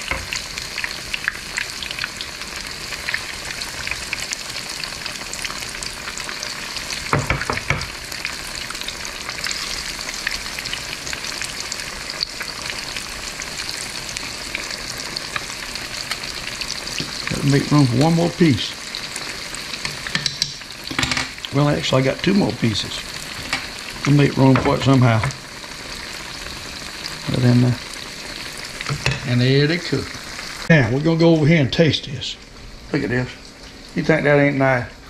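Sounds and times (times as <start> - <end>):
fish frying in hot oil: 0.0 - 30.7
knock: 7.1 - 7.9.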